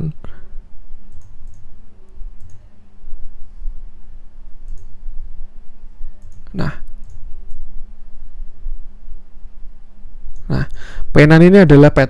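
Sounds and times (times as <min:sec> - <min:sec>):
low steady hum: 0:00.0 - 0:12.0
computer mouse clicking: 0:01.1 - 0:01.7, 0:02.4 - 0:02.6, 0:04.6 - 0:05.0, 0:06.2 - 0:07.7.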